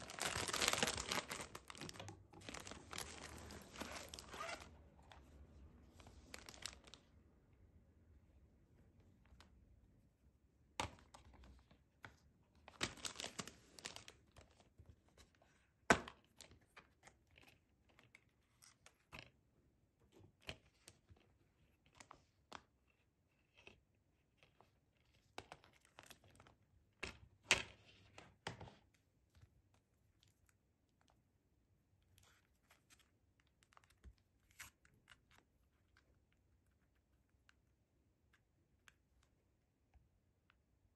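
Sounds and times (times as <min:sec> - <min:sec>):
plastic rustling: 0:00.0 - 0:05.2, 0:05.9 - 0:07.1, 0:12.7 - 0:14.6.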